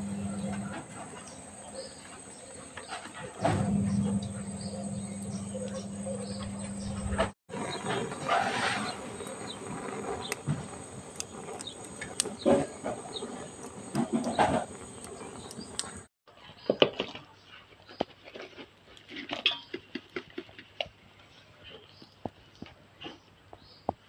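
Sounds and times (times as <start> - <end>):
wood fire crackling and popping: 0.0 - 16.1.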